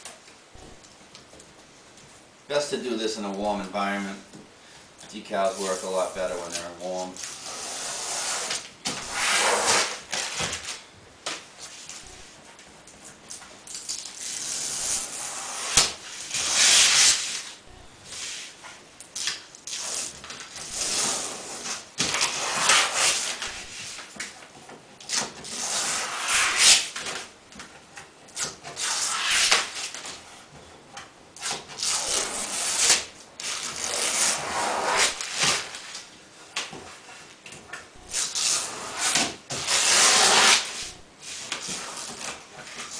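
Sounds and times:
hands rubbing vinyl: 5.3s - 10.4s, 14.2s - 18.8s, 19.7s - 24.2s, 25.4s - 26.9s, 28.8s - 30.3s, 31.5s - 36.0s, 38.2s - 42.9s
tape peeling off vinyl: 5.5s - 12.1s, 12.9s - 24.4s, 25.0s - 27.3s, 28.3s - 30.2s, 31.4s - 36.1s, 38.1s - 42.9s.

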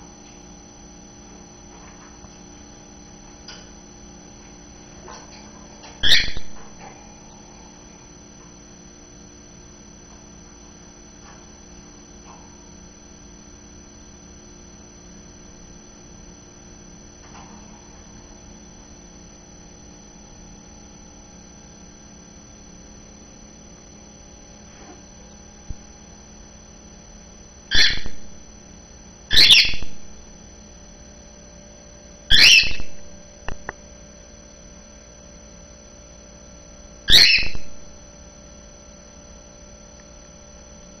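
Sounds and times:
cockatiel calls: 6.0s - 6.6s, 27.7s - 28.2s, 29.3s - 30.0s, 32.3s - 33.0s, 37.1s - 37.7s.

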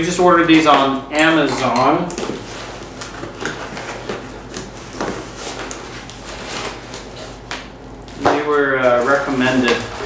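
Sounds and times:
plastic bag rustling: 2.2s - 10.0s.

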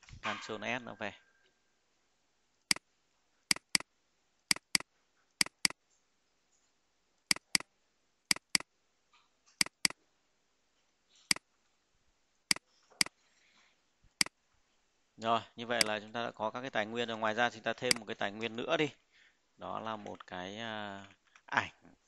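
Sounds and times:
mouse button clicking: 3.5s - 3.8s, 4.5s - 4.8s, 5.4s - 5.8s, 7.3s - 7.6s, 8.3s - 8.6s, 9.6s - 10.0s.

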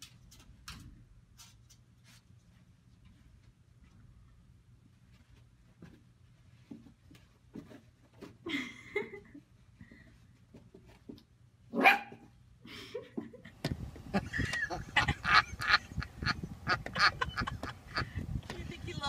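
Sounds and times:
puppy barking and yipping: 11.7s - 12.2s.

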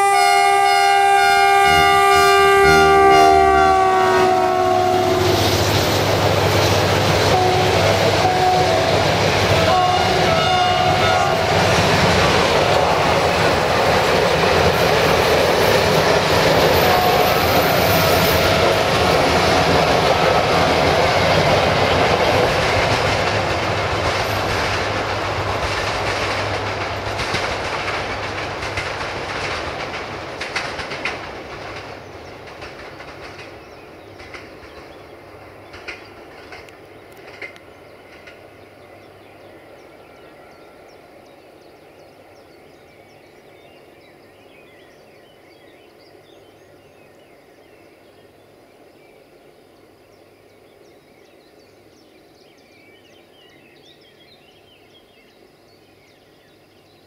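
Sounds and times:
train chord horn: 0.0s - 5.7s, 7.2s - 11.9s, 16.8s - 18.7s
train wheels clicking over rail joints: 11.4s - 38.6s.

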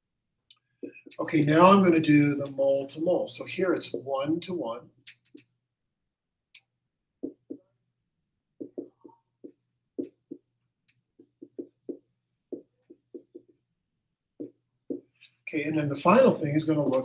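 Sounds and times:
marker writing on whiteboard: 0.6s - 1.2s, 5.0s - 5.5s, 6.6s - 7.8s, 8.5s - 13.7s, 14.3s - 15.4s.

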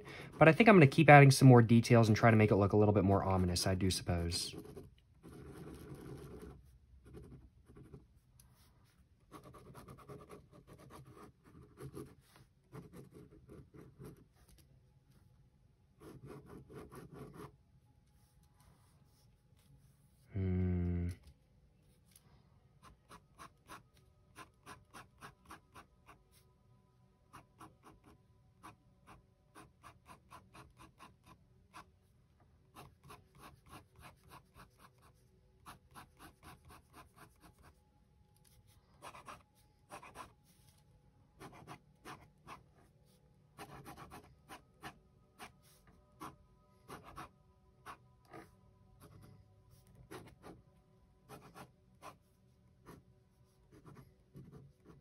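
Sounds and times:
pen scratching on paper: 4.5s - 14.6s, 16.0s - 17.5s, 22.8s - 26.4s, 27.3s - 31.9s, 32.7s - 37.8s, 39.0s - 40.3s, 41.4s - 42.9s, 43.6s - 49.3s, 49.9s - 50.6s, 51.3s - 52.2s, 52.8s - 53.0s, 53.6s - 55.0s.

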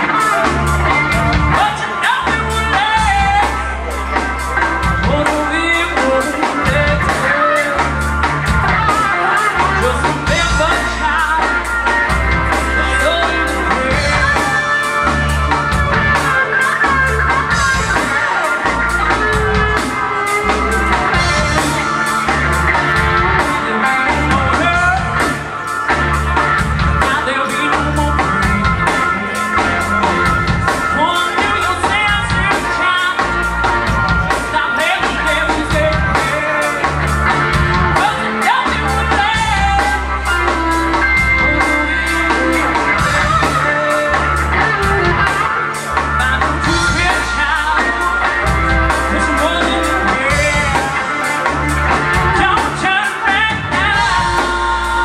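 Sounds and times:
drum kit: 0.0s - 55.0s
electric bass: 0.0s - 55.0s
electric guitar: 0.0s - 55.0s
woman singing: 0.1s - 3.8s, 5.0s - 8.1s, 12.8s - 14.7s, 49.0s - 55.0s.

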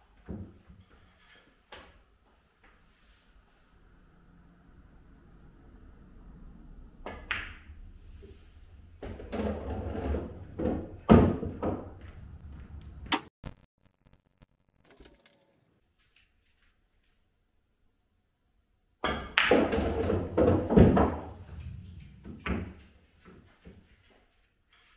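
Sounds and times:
pool balls rolling and knocking: 6.9s - 13.1s, 19.0s - 23.6s.

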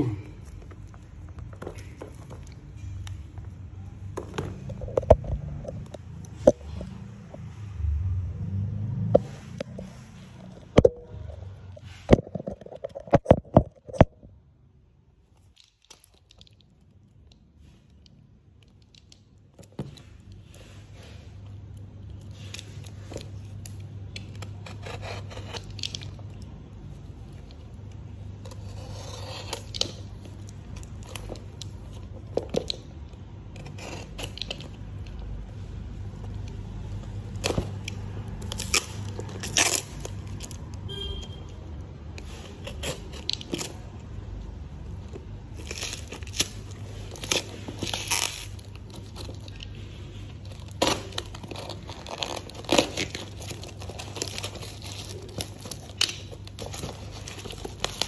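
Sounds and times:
plastic wrapping tearing: 37.3s - 40.7s, 45.4s - 58.0s
cardboard tearing: 50.5s - 58.0s.

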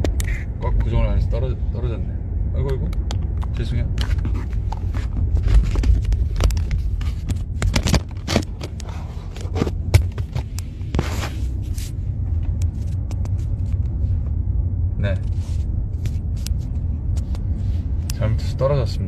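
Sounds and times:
car road rumble: 0.0s - 19.0s
phone scraping against clothing: 8.2s - 12.0s.

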